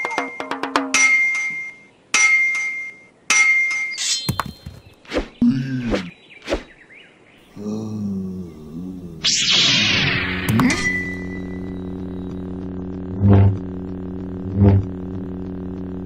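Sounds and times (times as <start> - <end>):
ringing metallic clangs: 0.0 - 4.3
grunt-like voice: 5.4 - 6.1, 7.5 - 9.4.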